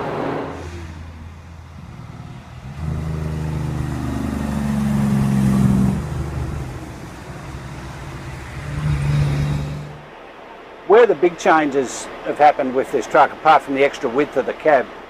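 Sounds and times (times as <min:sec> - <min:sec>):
truck diesel engine passing: 0:00.0 - 0:10.7.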